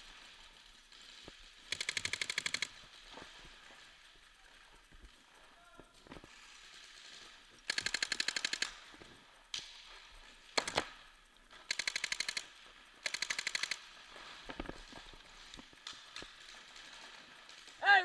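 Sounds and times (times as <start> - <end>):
paintball marker rapid firing: 1.7 - 2.8, 7.7 - 8.8, 10.6 - 10.9, 11.6 - 13.8.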